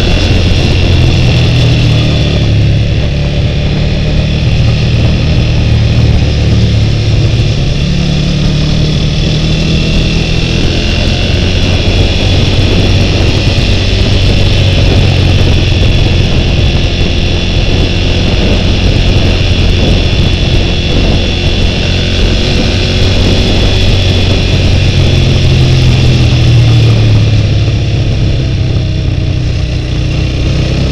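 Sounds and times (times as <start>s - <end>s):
motorcycle engine running: 0.0s - 30.9s
road and wind noise: 0.0s - 30.9s.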